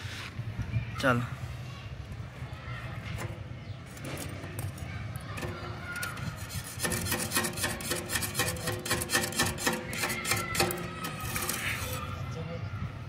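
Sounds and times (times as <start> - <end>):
electrode scraping steel plate: 3.1 - 12.3
steel plate ringing: 5.4 - 12.1.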